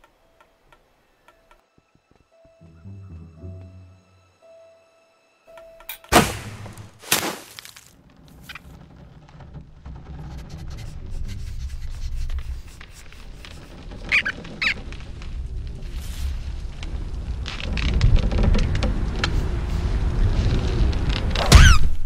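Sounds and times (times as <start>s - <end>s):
sharp cartoon thwack: 6.1s - 7.6s, 21.5s - 21.9s
short squeaks: 13.2s - 15.1s.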